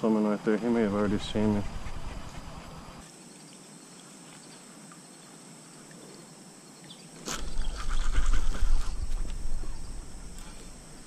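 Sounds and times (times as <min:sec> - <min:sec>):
creek ambience: 0:00.2 - 0:11.0
high-pitched insect drone: 0:00.8 - 0:11.0.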